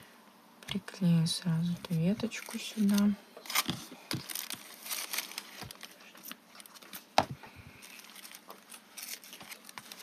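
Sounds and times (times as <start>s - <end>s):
paper rustling and clicking: 2.2s - 7.1s, 7.8s - 10.0s.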